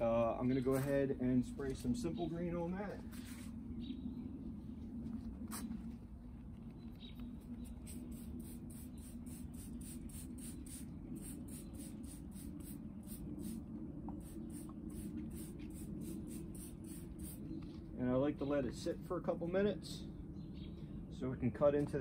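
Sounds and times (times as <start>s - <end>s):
steady low hum: 0.0s - 22.0s
spray bottle squirting: 7.8s - 12.8s.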